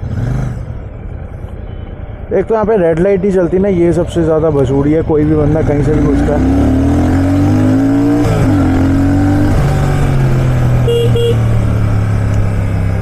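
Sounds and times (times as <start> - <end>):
traffic: 0.0 - 13.0
motorcycle engine accelerating: 5.2 - 13.0
horn tooting: 10.8 - 11.7.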